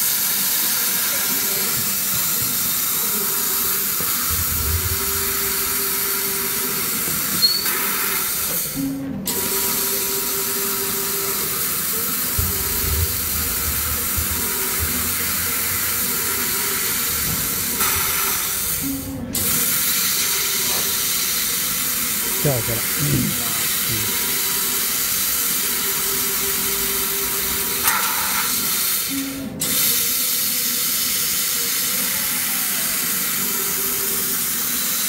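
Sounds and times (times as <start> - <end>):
gas hissing through cutting head: 0.0 - 35.0
short low hum: 4.0 - 7.0, 12.2 - 18.0.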